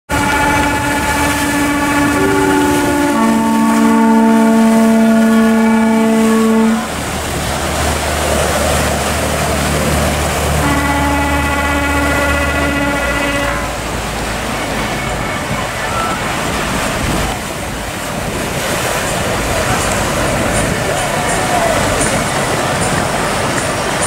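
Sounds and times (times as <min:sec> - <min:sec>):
churning water rushing: 0:00.0 - 0:24.0
boat horns blowing: 0:00.1 - 0:16.9
low engine rumble: 0:00.1 - 0:24.0.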